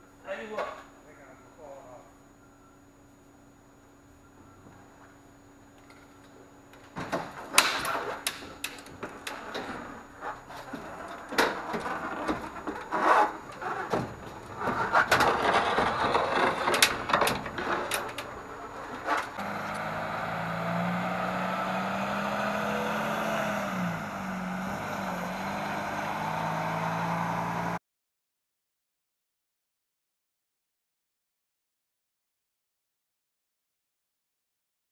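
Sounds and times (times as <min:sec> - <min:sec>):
knocks clanks and scrapes: 0:07.1 - 0:19.4
truck diesel engine running: 0:17.0 - 0:27.8.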